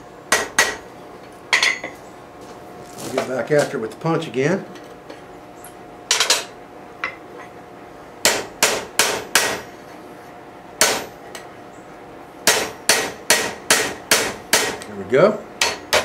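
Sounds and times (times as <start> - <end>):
hammer striking steel punch: 0.3 - 0.8, 8.2 - 9.7, 10.8 - 11.1, 12.4 - 14.9, 15.6 - 16.0.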